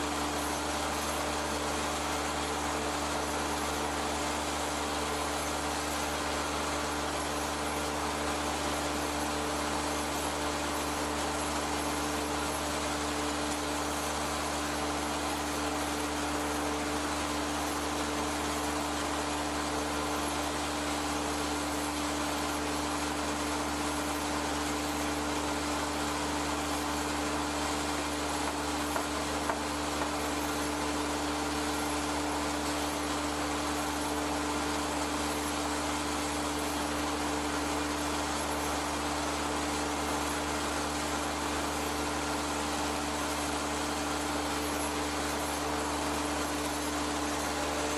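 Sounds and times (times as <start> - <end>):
workshop machinery droning: 22.6 - 47.9.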